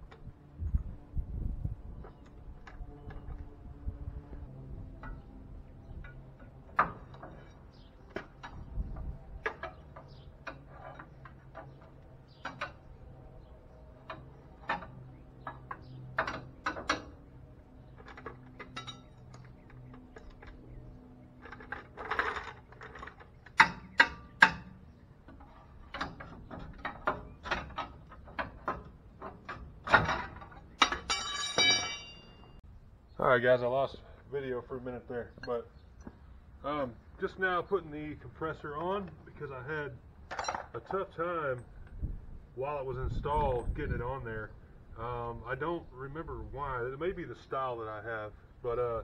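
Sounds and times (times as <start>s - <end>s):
steel hand tools clinking on metal: 30.8s - 32.6s.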